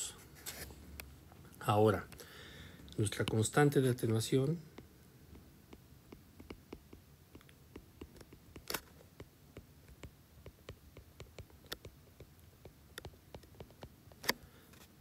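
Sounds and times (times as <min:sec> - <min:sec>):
stylus tapping on glass screen: 0:04.7 - 0:13.9.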